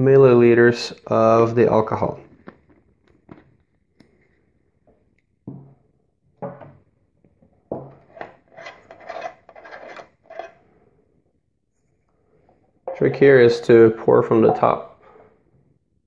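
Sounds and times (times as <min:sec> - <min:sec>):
metal screw cap grating open: 0:08.0 - 0:10.6.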